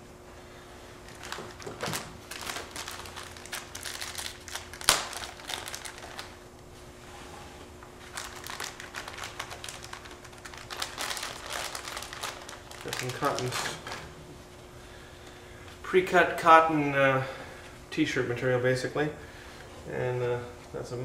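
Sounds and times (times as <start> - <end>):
plastic bag crinkling: 1.0 - 6.4, 8.0 - 14.2.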